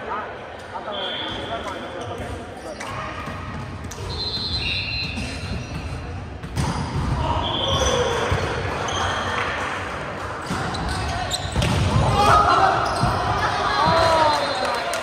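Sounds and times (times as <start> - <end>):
background voices in echoing hall: 0.0 - 15.0
sneakers squeaking on hardwood: 2.0 - 7.0, 10.4 - 11.8, 12.8 - 13.4.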